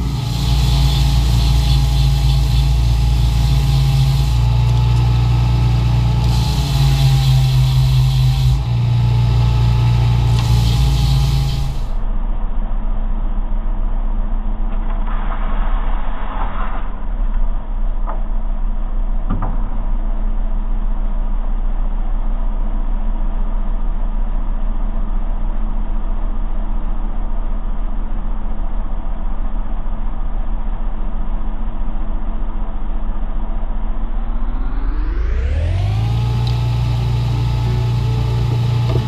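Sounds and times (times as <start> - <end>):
belt sander motor humming: 0.0 - 12.0, 34.8 - 39.0
wood sanding on belt: 0.0 - 12.0, 36.4 - 39.0.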